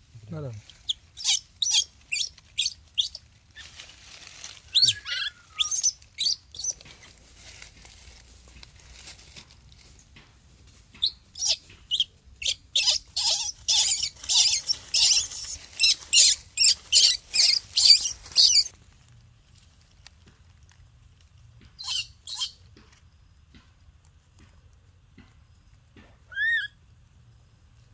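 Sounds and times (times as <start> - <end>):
dry leaves crunching and rustling: 0.4 - 10.2, 12.9 - 21.4.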